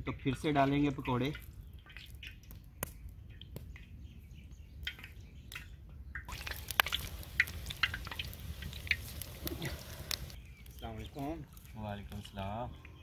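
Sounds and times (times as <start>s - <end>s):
hot oil popping and dripping: 0.0s - 13.0s
batter sizzling in oil: 6.3s - 11.7s.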